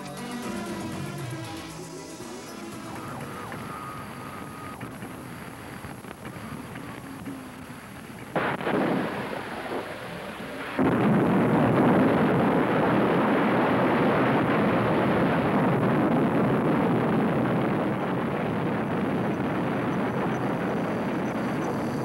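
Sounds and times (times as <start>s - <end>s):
distant explosion: 8.0s - 22.0s.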